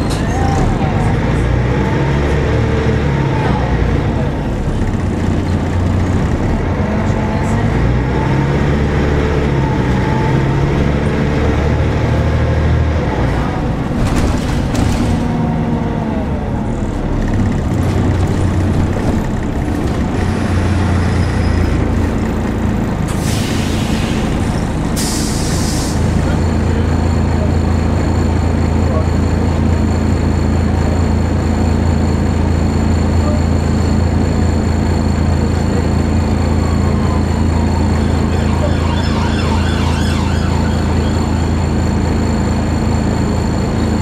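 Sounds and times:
diesel bus engine: 0.0s - 44.0s
air brake hiss: 23.1s - 24.4s, 25.0s - 26.2s.

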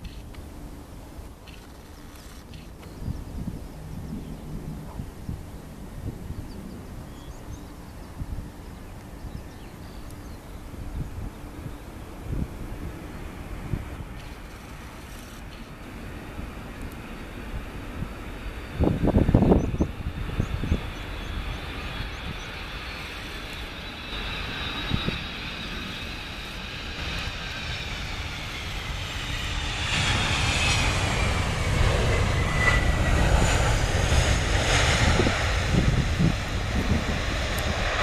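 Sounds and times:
jet engine whine: 0.0s - 38.0s
wind buffeting microphone: 0.0s - 38.0s
jet engines spooling up: 9.8s - 38.0s.

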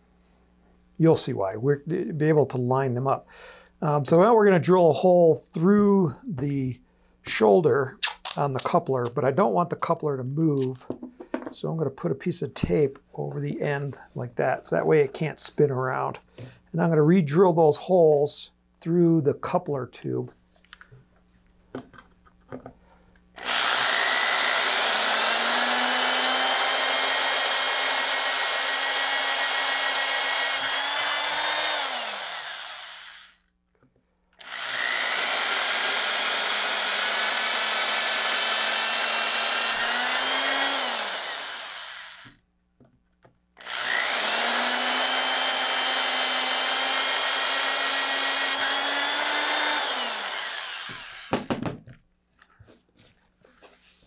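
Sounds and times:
electric drill boring through tube: 23.4s - 33.5s, 34.4s - 42.4s, 43.6s - 51.5s.

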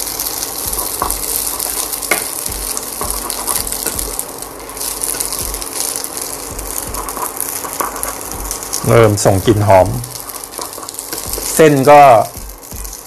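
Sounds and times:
spaghetti sizzling in pan: 0.0s - 13.0s
spatula stirring: 0.6s - 8.9s, 10.2s - 11.8s.

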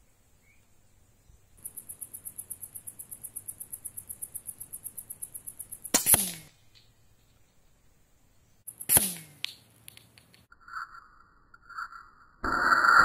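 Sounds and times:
insect chirping rapidly: 0.1s - 9.7s
air rifle firing crack: 5.9s - 6.5s, 8.8s - 9.6s
sharp click: 5.9s - 6.9s, 8.7s - 10.5s.

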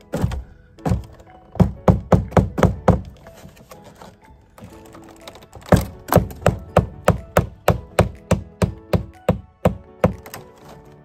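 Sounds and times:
hammer striking nail: 0.1s - 3.1s, 5.6s - 10.5s.

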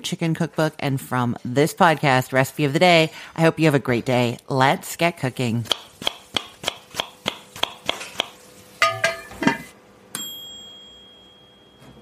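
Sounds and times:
bright ringing ding: 10.1s - 12.0s.

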